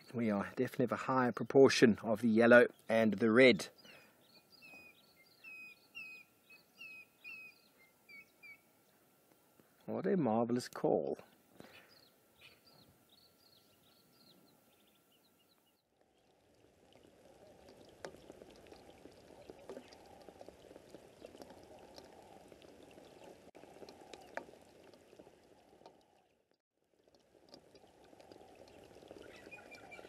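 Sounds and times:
faint crackling pattering hiss: 0.0 - 30.0
bird piping whistles: 4.5 - 8.6.

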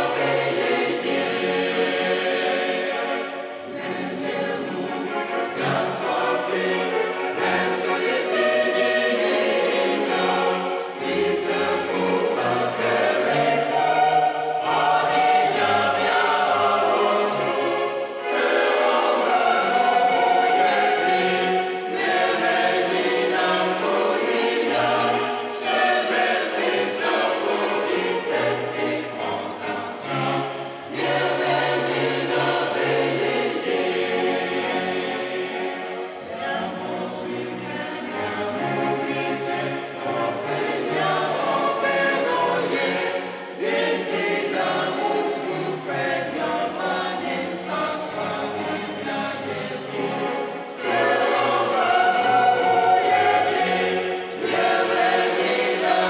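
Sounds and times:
choir singing in harmony: 0.0 - 56.0.

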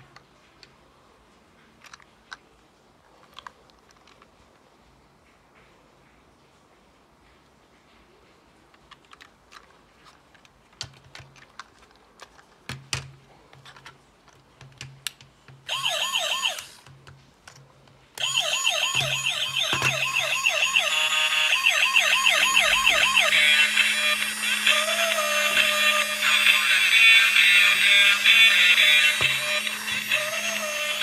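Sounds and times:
plastic toy clicks and knocks: 8.8 - 15.7
electronic toy siren wailing: 15.7 - 16.8, 18.2 - 31.0.

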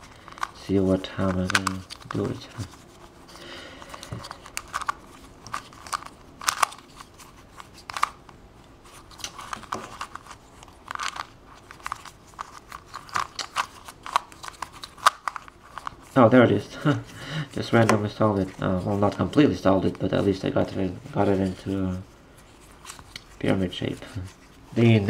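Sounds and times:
plastic puzzle clicking: 4.0 - 6.8, 7.8 - 8.2, 9.1 - 15.9.

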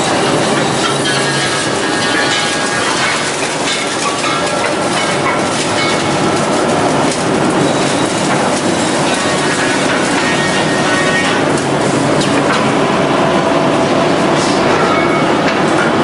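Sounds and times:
woodworking machine clattering: 0.0 - 12.8.

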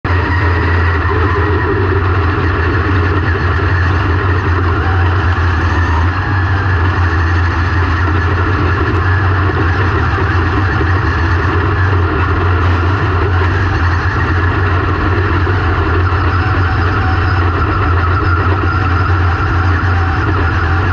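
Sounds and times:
race car engine droning: 0.0 - 20.9.

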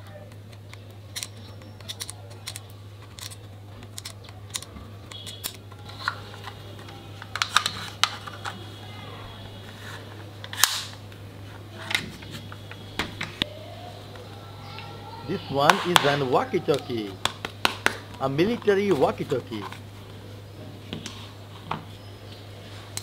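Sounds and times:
plastic toy pistol clicks and snaps: 10.5 - 11.0.

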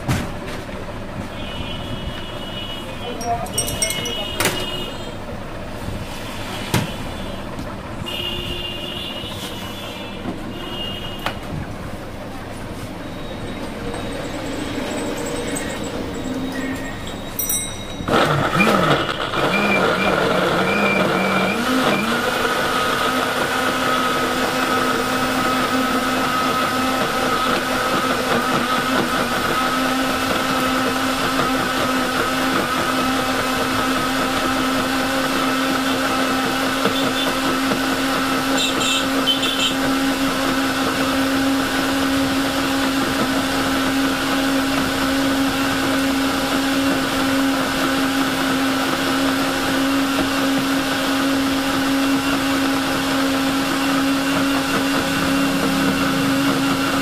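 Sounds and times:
street traffic noise: 0.0 - 57.0
blender running: 13.0 - 57.0.

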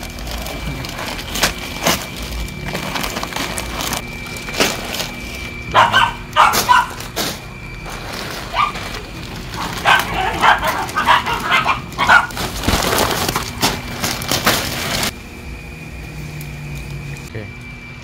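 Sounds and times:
plastic bags crinkling: 0.0 - 15.2
dog barking: 5.7 - 7.0, 8.5 - 8.8, 9.6 - 12.3.

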